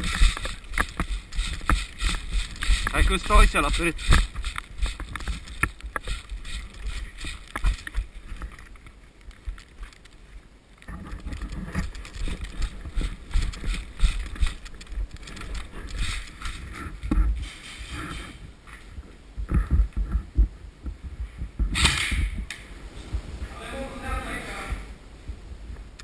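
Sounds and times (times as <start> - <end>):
footsteps crunching through snow: 0.0 - 8.5
clothing and gear rustling: 0.0 - 21.7.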